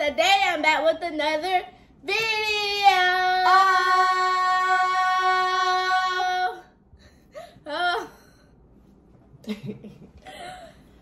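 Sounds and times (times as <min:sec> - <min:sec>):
girl singing long note: 0:02.1 - 0:06.7.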